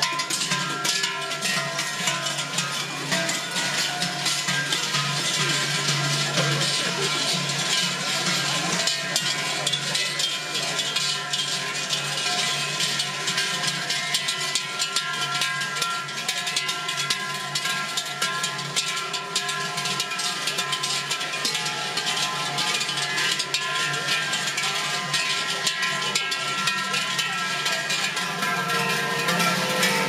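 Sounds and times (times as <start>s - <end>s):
large bells jangling: 0.0s - 30.0s.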